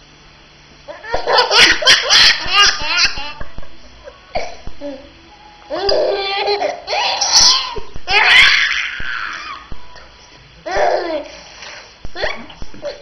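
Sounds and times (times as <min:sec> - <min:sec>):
baby laughing: 0:01.0 - 0:03.6, 0:05.7 - 0:08.6.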